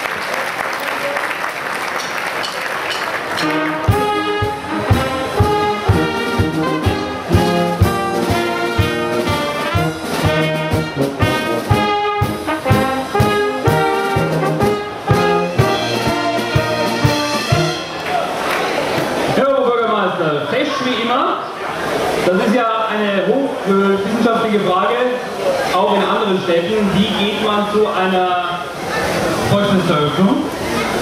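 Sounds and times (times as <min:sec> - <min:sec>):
applause: 0:00.0 - 0:04.1, 0:18.0 - 0:19.2
brass band playing: 0:03.3 - 0:18.6.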